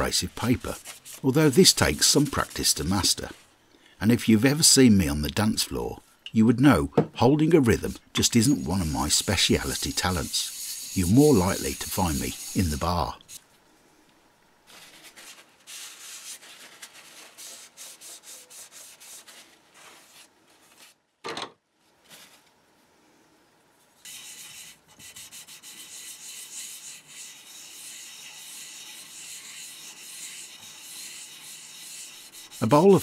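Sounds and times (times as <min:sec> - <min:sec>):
metal rubbing on abrasive paper: 0:00.0 - 0:03.4, 0:08.2 - 0:13.4, 0:14.7 - 0:21.0, 0:24.0 - 0:33.0.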